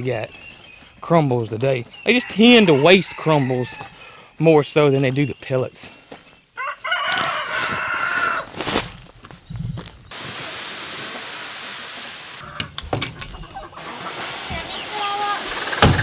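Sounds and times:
rooster crowing: 2.2 - 4.0, 6.6 - 8.5.

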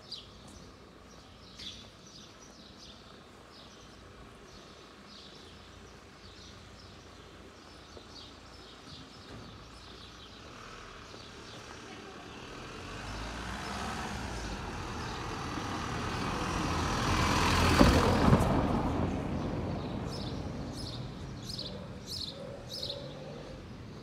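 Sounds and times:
vehicle driving past: 12.4 - 21.6
bird chirping: 19.4 - 24.0.

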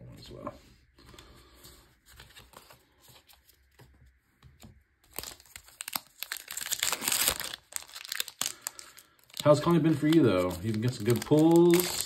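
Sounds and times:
foil wrapper tearing and crinkling: 5.1 - 12.0.

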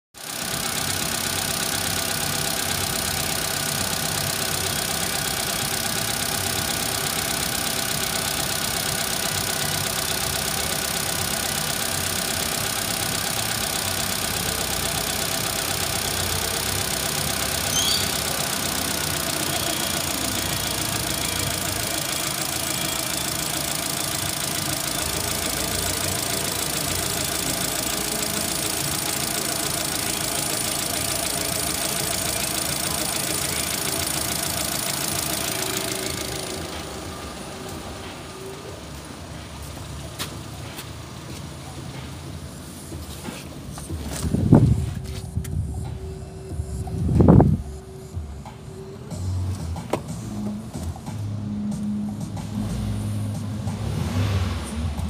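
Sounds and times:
car engine idling: 0.1 - 55.0
high chirp: 17.6 - 18.4.

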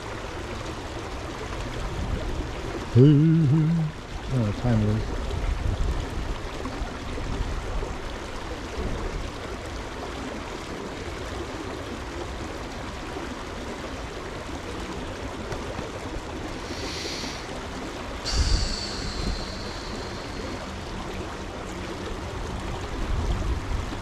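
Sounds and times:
stream rushing: 0.0 - 24.0.

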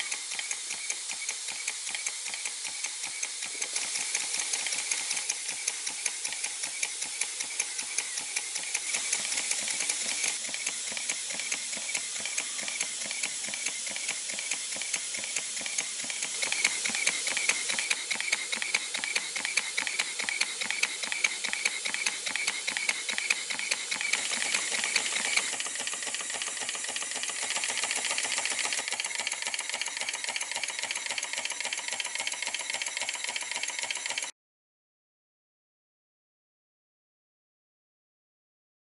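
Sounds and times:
steam hiss: 0.0 - 30.1
model steam engine exhaust beats: 0.0 - 34.2.

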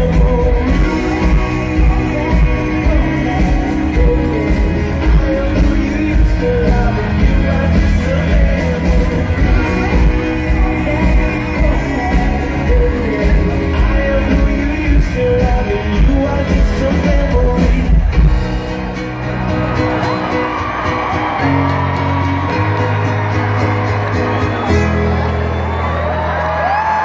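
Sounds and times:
heavy drum beat: 0.0 - 19.7
person singing: 0.0 - 23.0
live band playing amplified music: 0.0 - 27.0.

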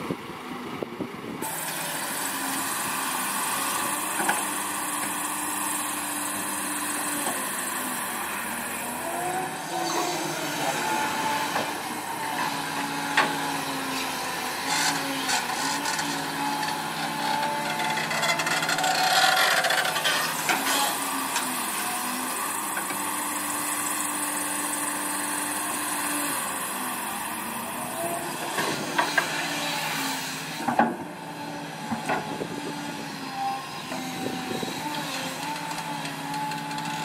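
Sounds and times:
excavator diesel engine running: 0.0 - 37.0.

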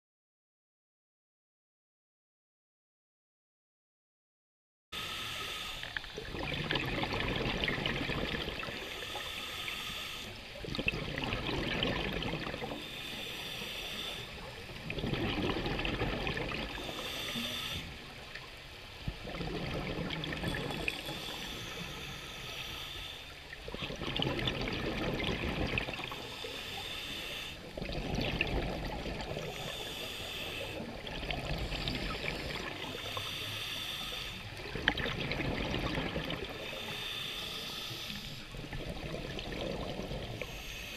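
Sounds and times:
regulator inhale hiss: 5.0 - 6.2, 8.7 - 10.5, 12.7 - 14.6, 16.7 - 18.1, 20.4 - 23.6, 25.9 - 27.8, 29.2 - 34.6, 36.5 - 38.7, 40.2 - 40.9
exhale bubbling: 5.8 - 18.2, 19.0 - 40.9.

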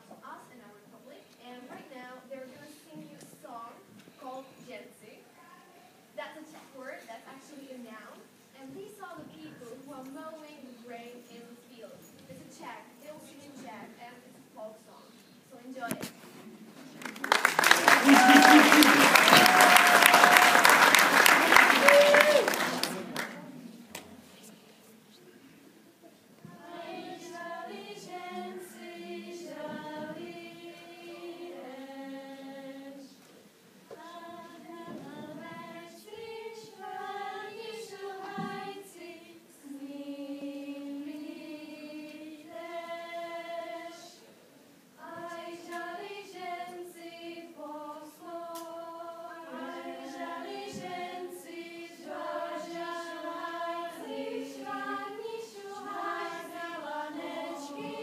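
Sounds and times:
choir of young voices singing: 26.4 - 33.2, 33.9 - 44.3, 45.0 - 58.0.

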